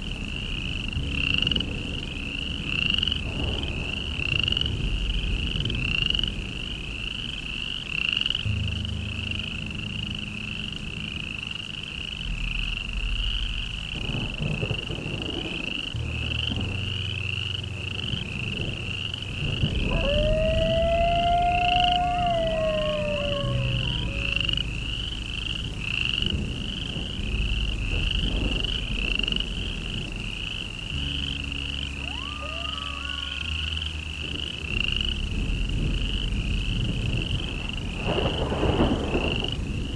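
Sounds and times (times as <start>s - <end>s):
low drone: 0.0s - 39.9s
rising and falling howl: 19.4s - 30.3s, 30.9s - 39.9s
chorus of pulsing calls: 19.6s - 25.3s, 31.0s - 34.9s.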